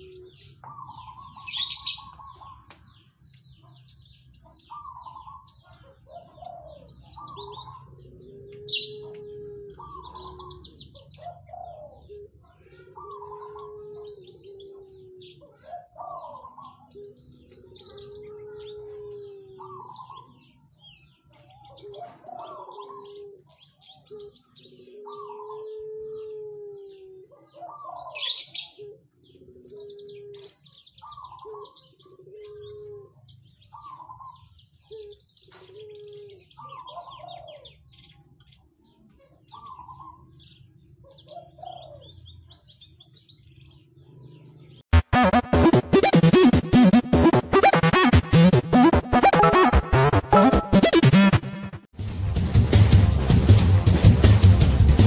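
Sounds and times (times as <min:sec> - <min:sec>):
bird chirps and trills: 0:00.0 - 0:51.9
low cooing notes: 0:07.3 - 0:16.7, 0:17.5 - 0:20.2
loud harsh bursts: 0:45.0 - 0:52.3.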